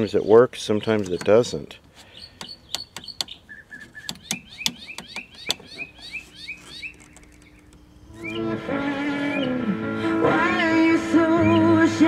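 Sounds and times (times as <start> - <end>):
bird chirping: 0.0 - 9.7, 11.3 - 12.0
selector knob clicks: 2.4 - 5.9.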